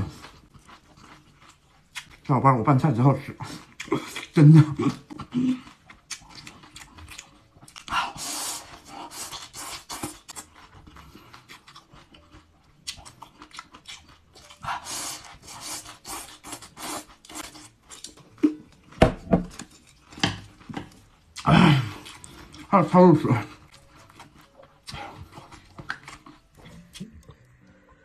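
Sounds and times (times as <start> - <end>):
crunchy chewing: 0.0 - 2.3, 3.5 - 18.9, 23.4 - 27.7.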